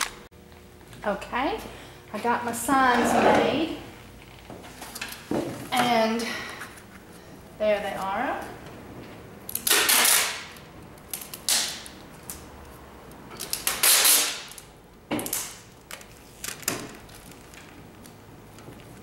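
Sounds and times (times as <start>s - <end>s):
adhesive tape pulled off roll: 13.4s - 14.7s.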